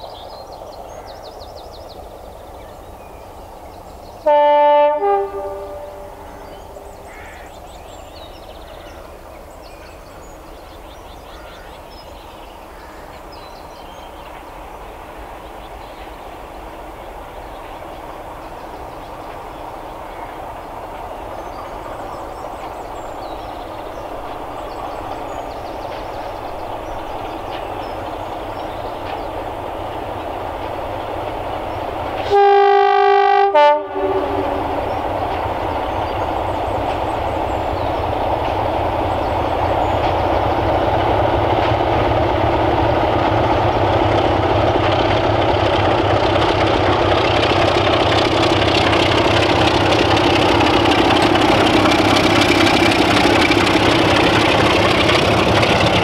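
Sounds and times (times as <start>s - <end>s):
diesel locomotive engines: 0.0s - 56.0s
two-tone train horn: 4.2s - 6.4s, 32.2s - 34.8s.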